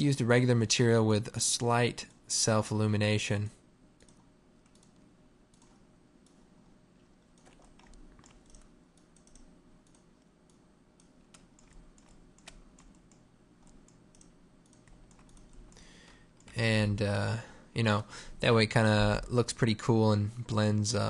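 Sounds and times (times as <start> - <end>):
low steady hum: 0.0 - 21.0
keyboard and mouse clicks: 4.0 - 6.4, 7.2 - 16.6.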